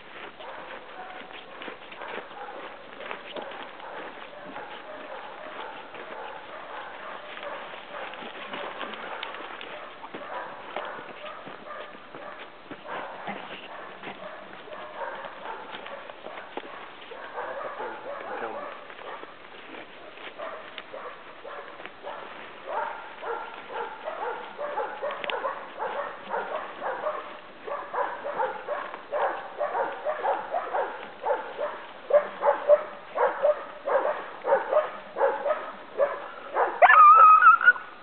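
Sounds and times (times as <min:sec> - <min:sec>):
hunting dogs barking: 0:00.0 - 0:38.0.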